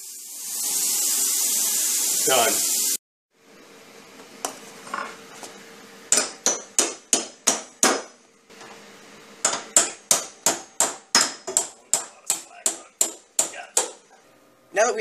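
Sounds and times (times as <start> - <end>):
hammer striking steel pins: 6.1 - 8.2, 9.4 - 14.0.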